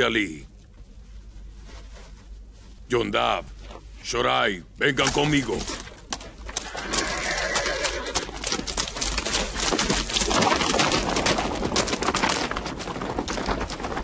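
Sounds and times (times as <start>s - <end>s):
horse hooves clattering on dry ground: 5.1s - 14.0s.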